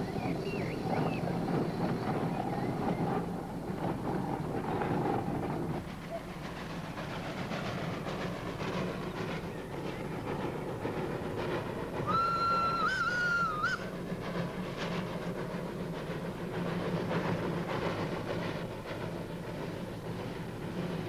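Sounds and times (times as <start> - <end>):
rail noise: 0.0 - 21.0
steam locomotive exhaust beats: 0.0 - 21.0
steam whistle blast: 12.0 - 13.9.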